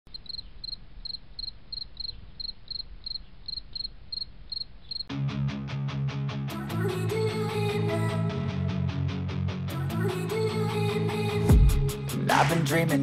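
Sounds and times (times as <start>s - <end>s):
cricket-like chirping: 0.1s - 5.1s
rock music with electric guitar: 5.1s - 10.0s.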